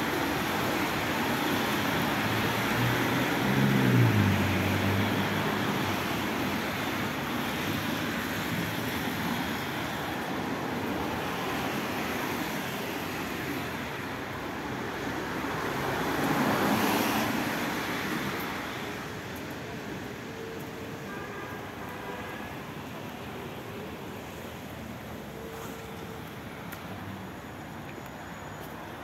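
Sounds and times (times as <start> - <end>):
tyres hissing on wet road: 0.0 - 29.0
vehicle engine passing by: 2.7 - 5.6.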